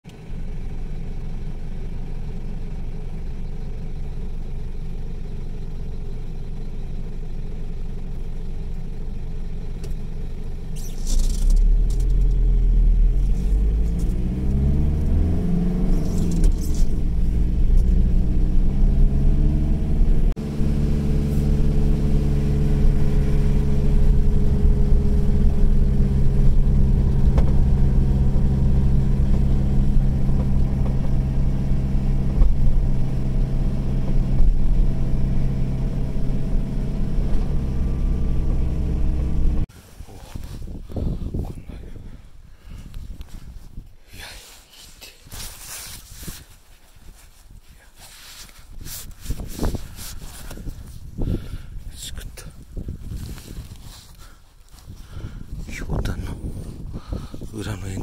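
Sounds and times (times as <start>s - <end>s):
car engine inside cabin: 0.1s - 41.7s
road noise: 0.1s - 58.0s.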